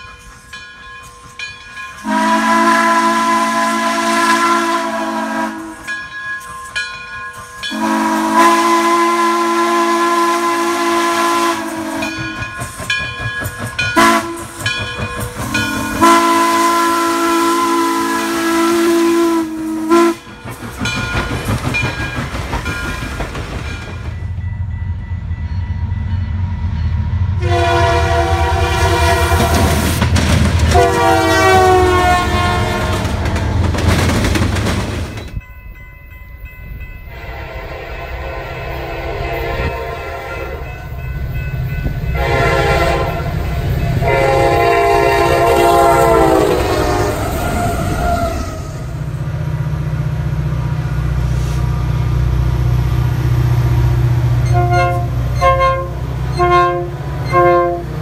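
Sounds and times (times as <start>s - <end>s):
steam locomotive chime whistle: 0.0s - 22.9s, 24.1s - 30.0s, 30.7s - 33.1s, 35.1s - 49.2s, 54.4s - 58.0s
freight train rumbling past: 0.0s - 58.0s
diesel locomotive horn: 2.0s - 5.9s, 7.7s - 12.4s, 14.0s - 14.6s, 15.4s - 20.3s, 27.4s - 30.0s, 30.6s - 33.4s, 37.1s - 40.7s, 42.1s - 49.8s, 53.1s - 58.0s.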